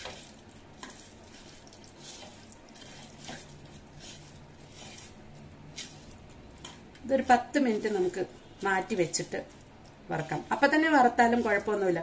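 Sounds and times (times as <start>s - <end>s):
wet squishing and rubbing: 0.0s - 6.3s.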